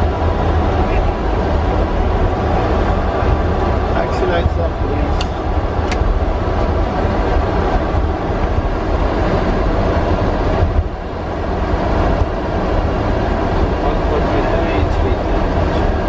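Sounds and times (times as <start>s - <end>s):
aircraft engines rumbling with hiss: 0.0s - 16.0s.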